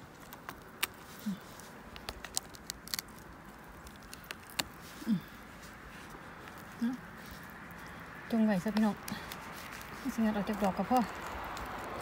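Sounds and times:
forest litter rustling: 0.0s - 12.0s
twigs clicking and snapping: 0.0s - 12.0s
person humming low: 5.0s - 5.4s.

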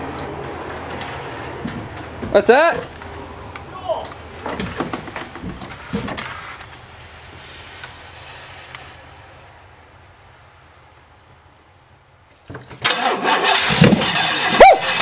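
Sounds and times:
clatter of car engine parts: 4.3s - 6.8s, 12.4s - 15.0s.

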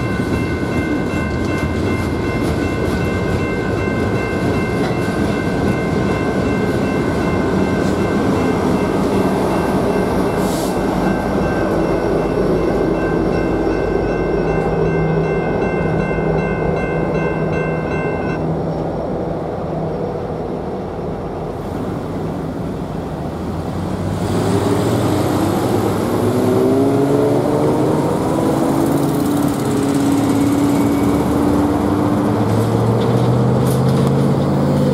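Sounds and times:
railroad crossing bell ringing: 0.0s - 18.6s, 25.4s - 33.6s
diesel locomotive rumble: 0.0s - 34.9s
vehicles accelerating with tyre noise: 21.6s - 34.9s.

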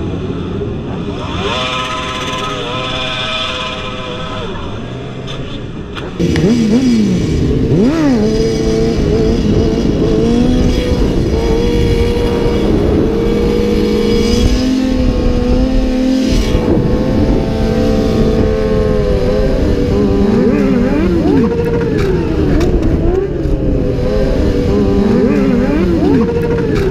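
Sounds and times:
motorcycle engine revving: 0.0s - 26.9s
wind rumble on microphone: 6.2s - 26.9s.

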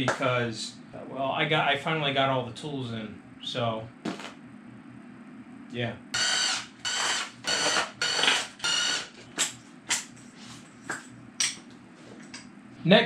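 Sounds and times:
cordless drill spinning bolts: 6.2s - 9.1s.

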